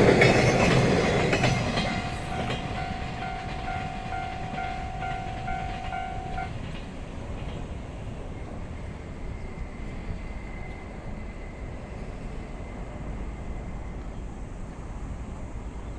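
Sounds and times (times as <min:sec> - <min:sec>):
level crossing bell ringing: 0:01.9 - 0:06.5.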